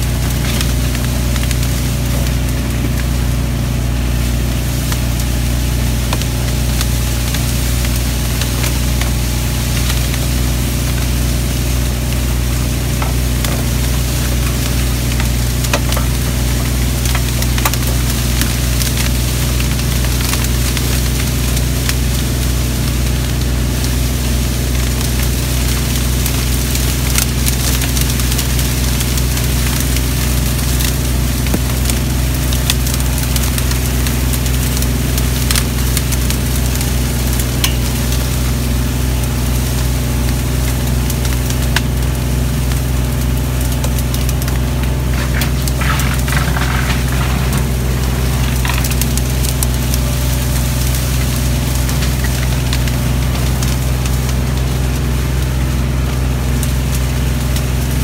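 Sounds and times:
mower engine hum: 0.0 - 58.0
stalks snapping and brushing: 43.7 - 54.4.

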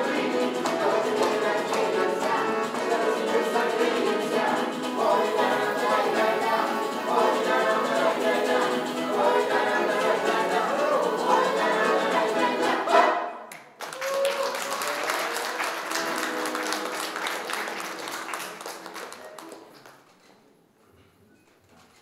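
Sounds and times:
woman and man singing: 0.0 - 13.0
accordion: 0.0 - 13.3, 14.9 - 18.0
acoustic guitar: 0.0 - 13.4, 14.8 - 20.7
audience applause: 13.5 - 20.2.

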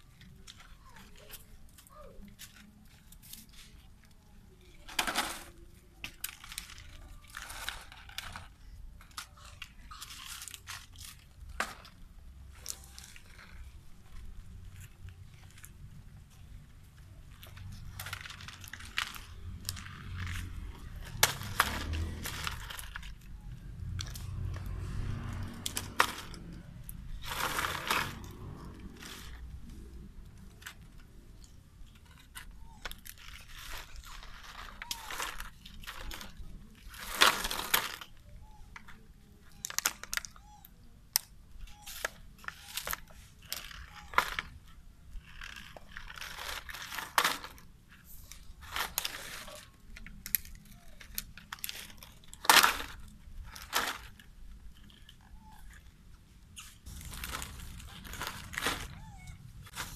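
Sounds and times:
plastic bottle crinkling: 45.2 - 59.9.

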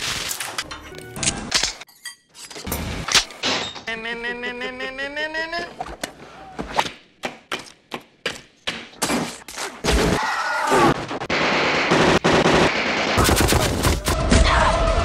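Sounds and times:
heavy automatic gunfire: 11.3 - 14.2.

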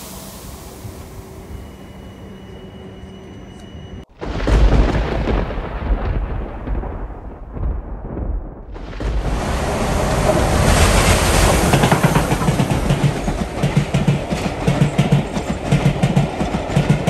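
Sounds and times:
steam train rushing past: 0.0 - 3.2, 9.0 - 17.0
wheels clattering over rail joints: 9.2 - 17.0.

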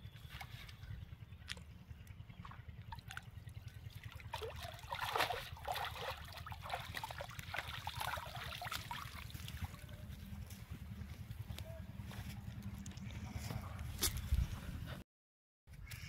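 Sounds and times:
water splashing and dripping off net: 4.0 - 9.7.

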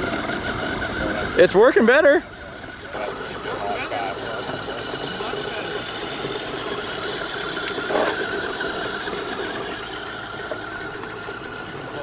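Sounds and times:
electric motor whining: 0.0 - 12.0.

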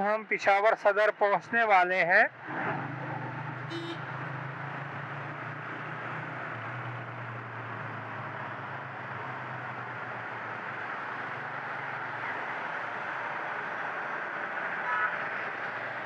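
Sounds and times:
wind and road noise: 0.0 - 16.0
low motorcycle engine hum: 3.0 - 14.6.

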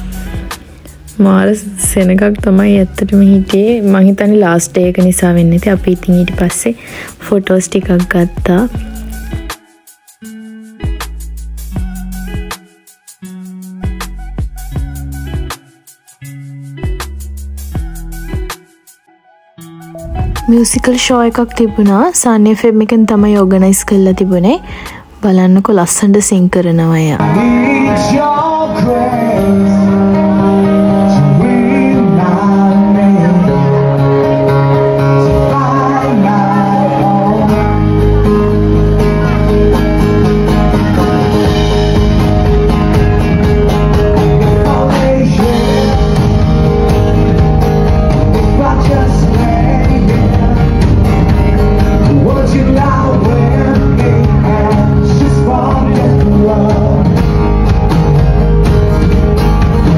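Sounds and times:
electric bass: 0.0 - 3.8, 27.2 - 59.9
drum kit: 0.0 - 4.0, 5.0 - 18.9, 19.8 - 22.0, 27.2 - 59.9
acoustic guitar: 0.0 - 59.9
man singing: 27.2 - 39.5, 42.2 - 57.5.

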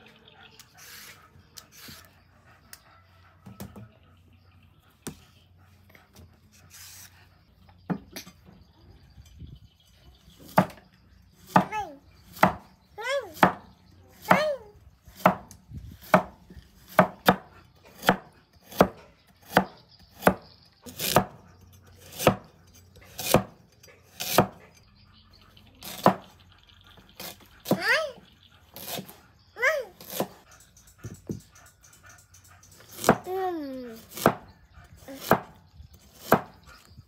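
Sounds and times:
cleaver chopping on wooden block: 12.4 - 12.7, 15.2 - 17.4, 36.2 - 36.6.

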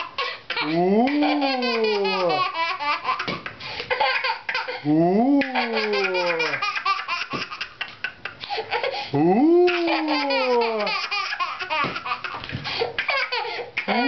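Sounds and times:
toddler laughing squeal: 0.0 - 4.8, 5.4 - 9.0, 9.7 - 12.4
toddler laughing: 0.0 - 9.0, 9.6 - 14.0.

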